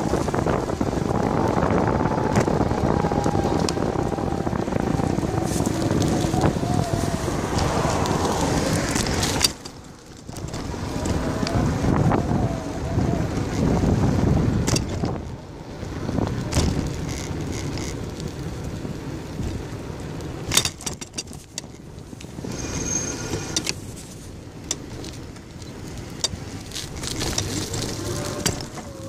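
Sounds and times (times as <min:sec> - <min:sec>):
bicycle tyre and wind rumble: 0:00.0 - 0:29.0
bike rattles and clicks: 0:00.0 - 0:29.0.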